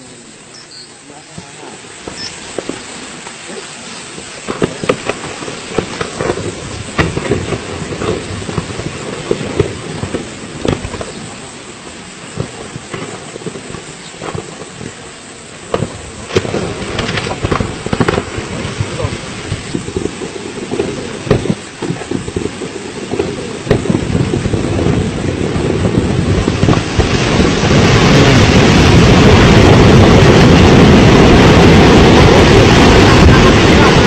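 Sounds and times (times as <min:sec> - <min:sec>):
volcano erupting roar: 0:01.5 - 0:34.0
sharp cracks and pops: 0:04.1 - 0:11.2, 0:15.7 - 0:18.4.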